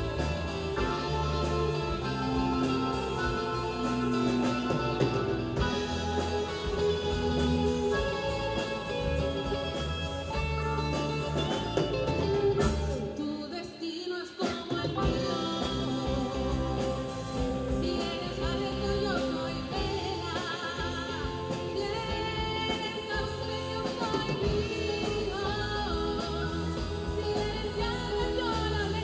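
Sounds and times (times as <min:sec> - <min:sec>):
drum kit steady beat: 0:00.0 - 0:13.2, 0:14.4 - 0:29.0
bass guitar: 0:00.0 - 0:13.4, 0:14.8 - 0:29.0
keyboard: 0:00.0 - 0:13.6
electric guitars: 0:00.0 - 0:13.8, 0:14.4 - 0:29.0.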